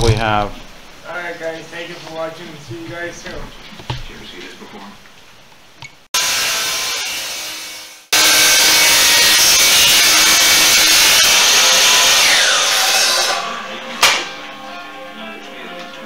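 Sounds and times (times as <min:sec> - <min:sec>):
miter saw cutting wood: 0:06.2 - 0:14.3
sharp knock: 0:14.0 - 0:14.4.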